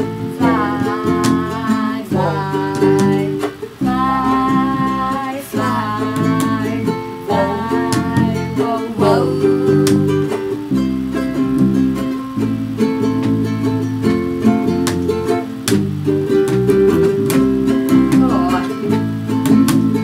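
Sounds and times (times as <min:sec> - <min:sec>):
child singing: 0:00.0 - 0:10.6, 0:17.8 - 0:20.0
strummed acoustic guitar: 0:00.0 - 0:20.0.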